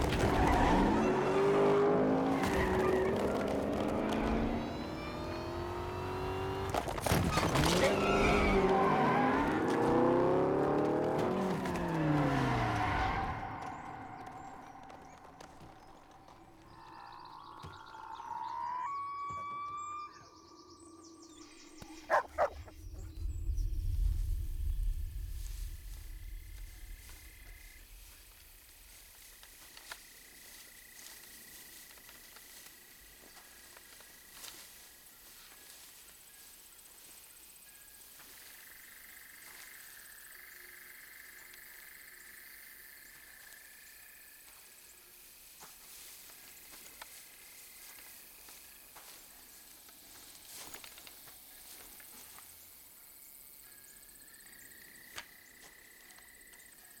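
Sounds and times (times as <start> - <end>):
birds chirping: 1.0 - 6.7, 13.2 - 35.5
insects chirping: 13.6 - 57.0
insects buzzing: 21.3 - 57.0
dog barking: 22.0 - 22.7
low rumble: 22.7 - 28.7.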